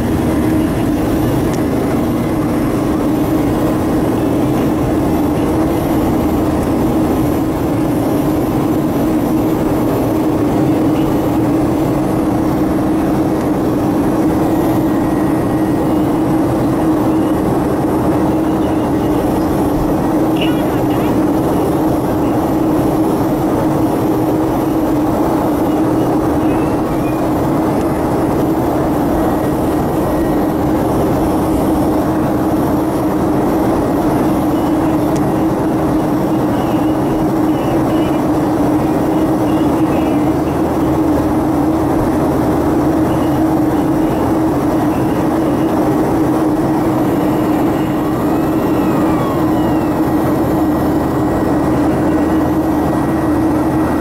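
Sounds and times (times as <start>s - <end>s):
air rushing over fuselage: 0.0s - 37.4s
constant low hum: 0.0s - 54.0s
jet engines: 0.0s - 54.0s.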